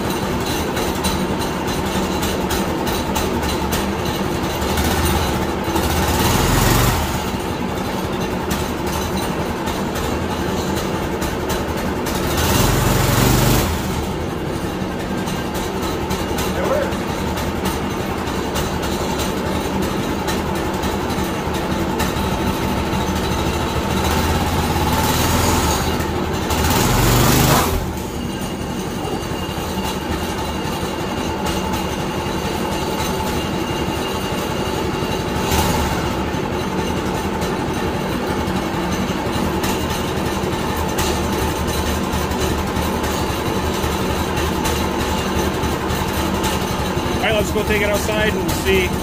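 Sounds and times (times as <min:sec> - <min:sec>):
minibike engine revving: 0:04.6 - 0:07.6, 0:12.0 - 0:14.4, 0:21.8 - 0:28.2, 0:34.3 - 0:36.4.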